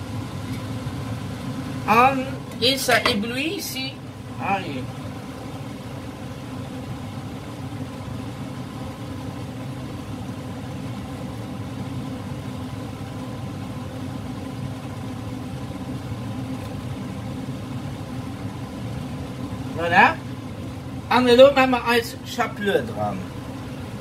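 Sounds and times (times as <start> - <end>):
appliance motor hum: 0.0 - 24.0.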